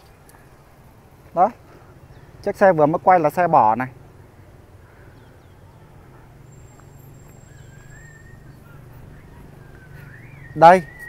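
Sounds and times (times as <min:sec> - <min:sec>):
faint wavering high call: 0:06.5 - 0:08.7.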